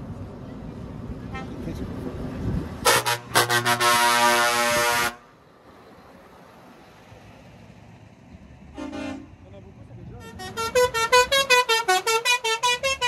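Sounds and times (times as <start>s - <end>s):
low engine rumble: 0.0s - 13.0s
truck air horn toots: 2.8s - 5.3s, 8.7s - 9.4s, 10.2s - 13.0s.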